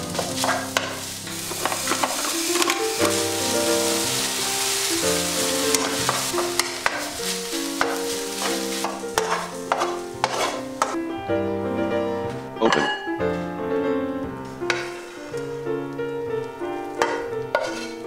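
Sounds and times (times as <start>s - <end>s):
food sizzling in frying pan: 0.0s - 11.0s, 14.5s - 18.0s
soft background music: 0.0s - 18.0s
spatula stirring and scraping: 0.1s - 11.0s, 14.7s - 15.4s, 17.0s - 18.0s.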